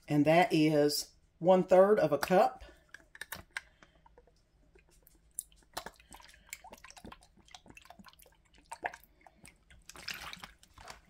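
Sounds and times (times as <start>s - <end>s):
liquid dripping and splashing: 3.1s - 11.0s.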